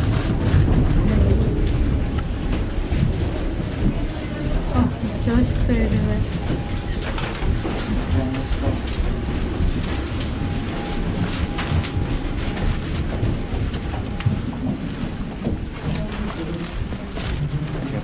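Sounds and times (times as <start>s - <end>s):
low rumbling background noise: 0.0s - 18.0s
faint hum: 0.1s - 18.0s.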